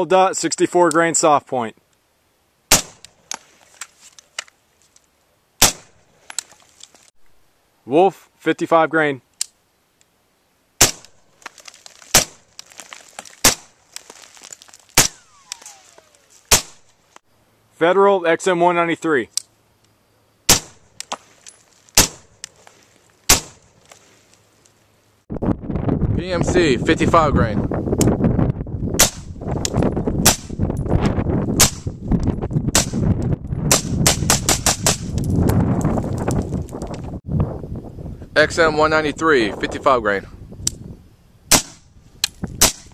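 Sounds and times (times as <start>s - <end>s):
suppressed rifle shots: 2.7s - 3.1s, 5.6s - 6.0s, 10.8s - 11.2s, 13.4s - 13.7s, 15.0s - 16.9s, 20.5s - 21.0s, 22.0s - 22.3s, 23.3s - 23.7s, 41.5s - 41.8s
sharp cracks: 2.7s - 5.0s, 5.6s - 7.1s, 10.8s - 17.1s, 20.5s - 24.4s, 29.0s - 30.7s, 31.6s - 32.0s, 32.7s - 37.0s, 41.5s - 42.9s.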